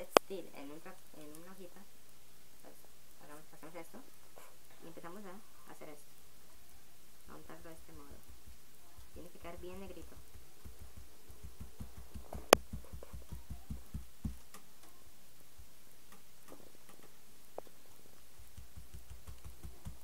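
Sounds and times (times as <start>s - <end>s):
sponge dabbing dull thumps: 7.8s - 14.9s, 18.4s - 20.0s.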